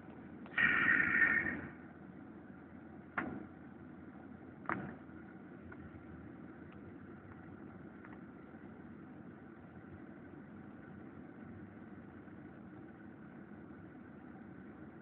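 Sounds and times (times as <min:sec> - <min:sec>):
vehicle engine and road noise: 0:00.0 - 0:15.0.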